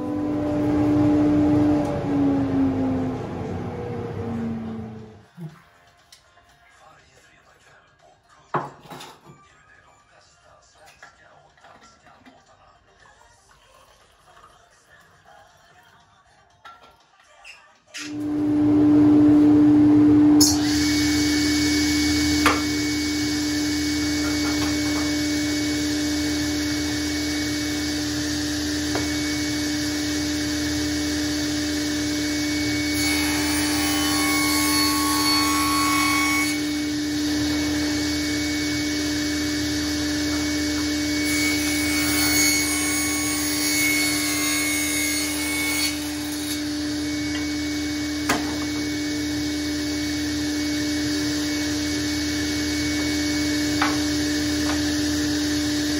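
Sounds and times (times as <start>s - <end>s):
table saw motor hum: 0.0s - 5.2s, 18.1s - 55.9s
saw blade cutting wood: 20.4s - 48.9s.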